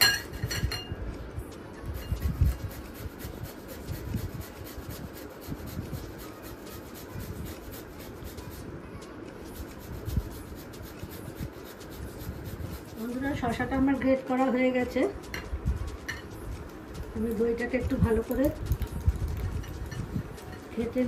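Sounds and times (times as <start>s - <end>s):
cucumber grated on metal grater: 2.0s - 8.8s, 9.4s - 18.7s.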